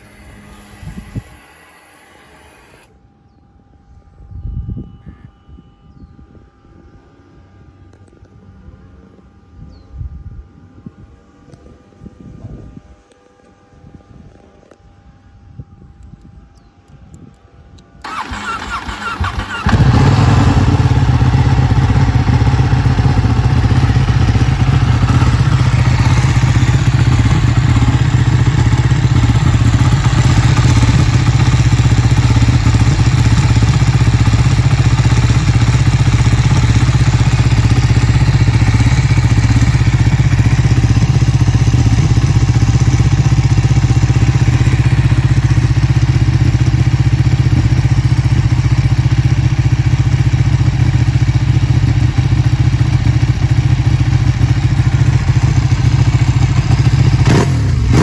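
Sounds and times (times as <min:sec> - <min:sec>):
motorcycle engine idling: 0:18.0 - 0:58.0.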